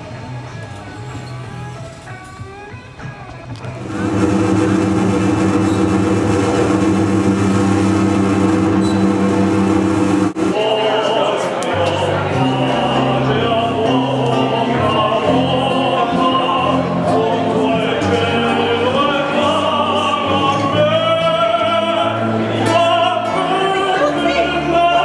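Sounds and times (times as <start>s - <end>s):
man singing operatically: 10.5s - 25.0s
plucked classical guitar: 11.5s - 25.0s.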